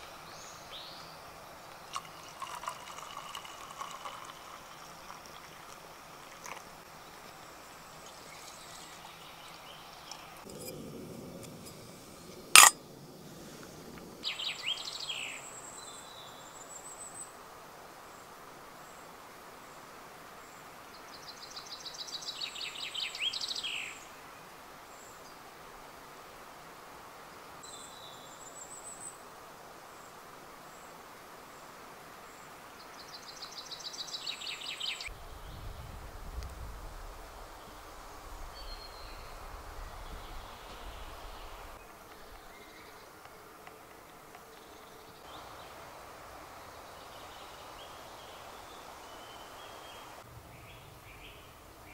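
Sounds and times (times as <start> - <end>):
songbird singing: 0.0 - 13.0, 14.2 - 17.4, 20.4 - 24.2, 27.6 - 29.3, 32.3 - 36.0, 37.4 - 51.9
faint woodland hiss: 0.0 - 51.9.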